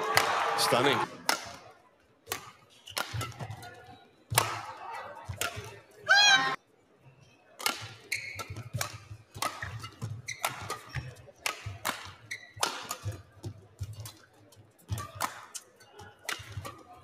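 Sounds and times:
racket hitting shuttlecock: 0:01.2 - 0:01.7, 0:02.3 - 0:03.7, 0:04.3 - 0:04.7, 0:05.3 - 0:05.7, 0:07.6 - 0:14.3, 0:14.9 - 0:15.6, 0:16.2 - 0:16.8
court shoes squeaking: 0:02.3 - 0:04.5, 0:05.1 - 0:17.0.

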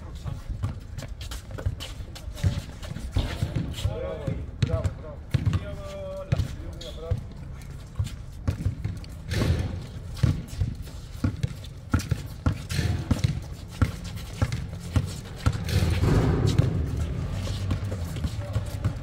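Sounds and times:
players' footsteps: 0:00.0 - 0:19.0
basketball bouncing on court: 0:03.4 - 0:06.6, 0:08.4 - 0:19.0.

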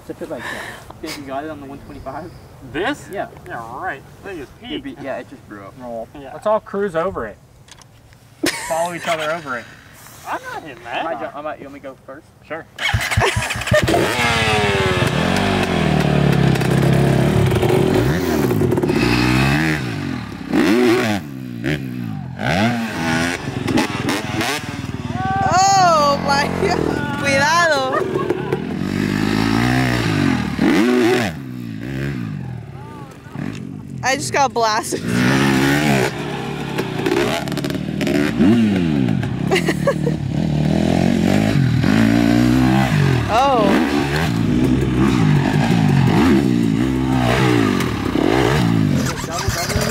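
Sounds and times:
dirt bike engine revving: 0:12.8 - 0:49.9.

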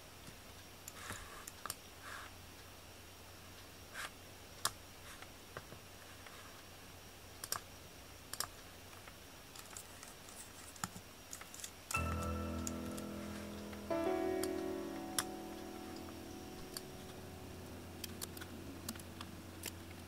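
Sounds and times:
keyboard keys clicking: 0:11.9 - 0:20.0
music playing: 0:12.0 - 0:20.0.

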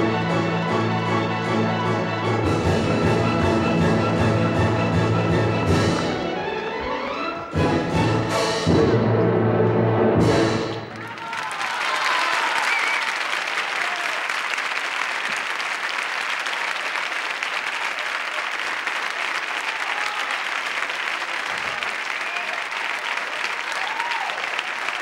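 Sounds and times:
audience applauding: 0:10.7 - 0:25.0.

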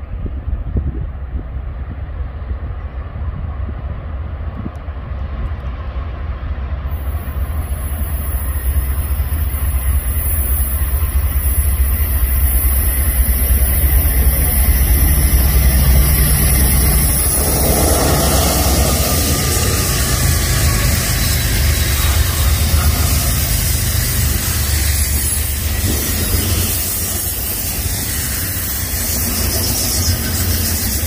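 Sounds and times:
diesel freight train rumbling: 0:00.0 - 0:31.0
hiss: 0:06.9 - 0:31.0.

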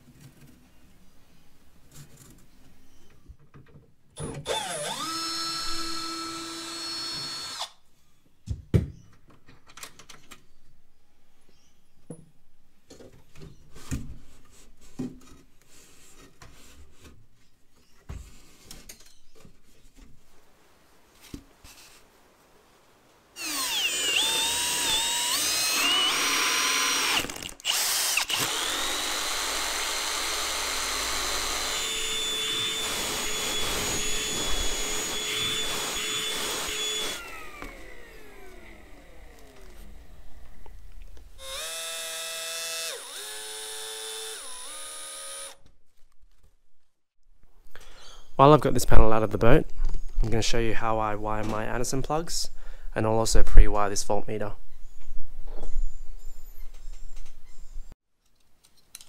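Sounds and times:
cordless drill running: 0:04.3 - 0:07.8, 0:23.4 - 0:40.2, 0:41.4 - 0:45.6
stick vacuum motor running: 0:23.4 - 0:40.2.

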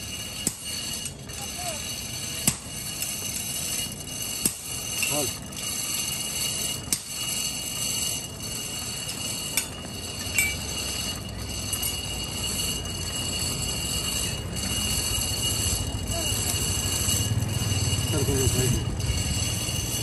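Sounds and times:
hand-cranked blower whining: 0:00.0 - 0:20.0.

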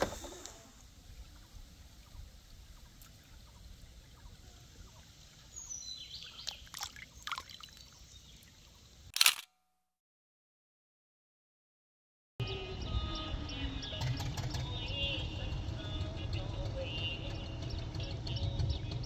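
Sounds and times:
stream trickling over pebbles: 0:01.0 - 0:09.1.

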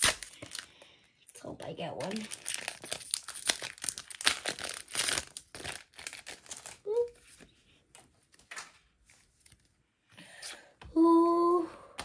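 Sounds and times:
foil wrapper tearing and crinkling: 0:00.0 - 0:00.8, 0:02.0 - 0:06.9
person humming: 0:10.9 - 0:11.9.

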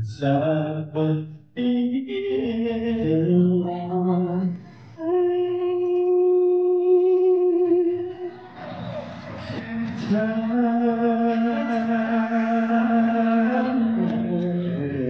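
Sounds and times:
man singing into microphone: 0:00.0 - 0:08.3, 0:09.8 - 0:15.0.

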